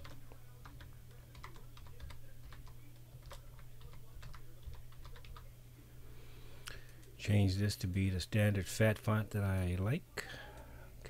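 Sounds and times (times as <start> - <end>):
typing on computer keyboard: 0.0 - 5.5.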